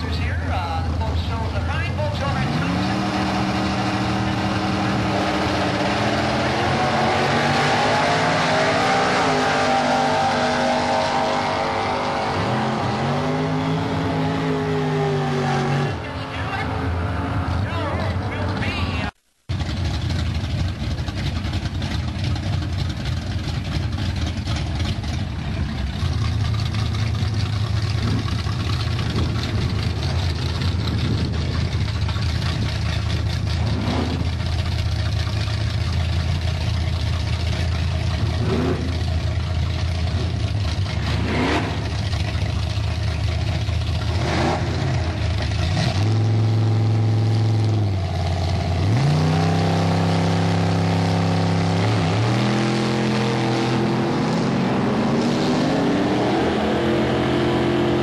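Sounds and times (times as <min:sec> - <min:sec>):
car engine idling and revving: 0:00.0 - 0:58.0.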